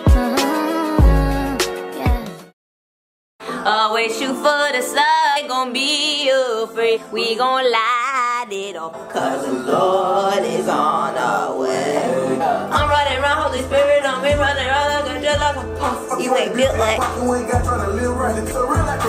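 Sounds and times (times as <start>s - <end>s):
song with ornamented singing: 0.0s - 2.6s, 3.4s - 19.0s.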